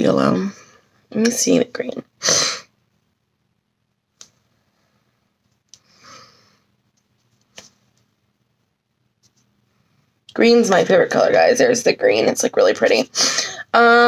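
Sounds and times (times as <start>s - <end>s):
soft breathy noise: 4.5s - 6.8s.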